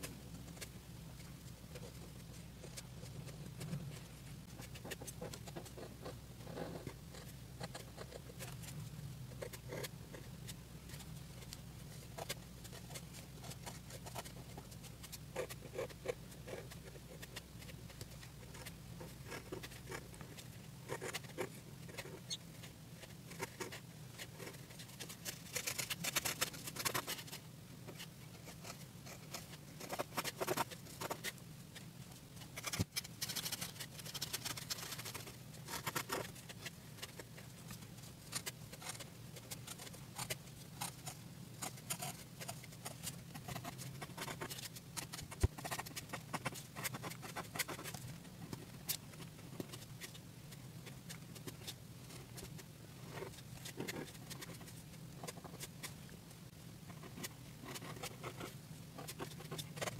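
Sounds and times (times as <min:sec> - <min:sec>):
pen scratching on paper: 0:10.9 - 0:22.4, 0:23.0 - 0:31.4, 0:38.3 - 0:50.2, 0:57.0 - 0:59.9.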